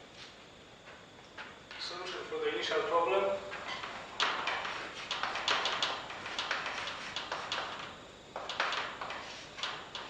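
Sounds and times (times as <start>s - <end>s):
chalk taps: 4.2s - 10.0s
chalk scratching on blackboard: 4.5s - 7.7s, 9.0s - 9.6s.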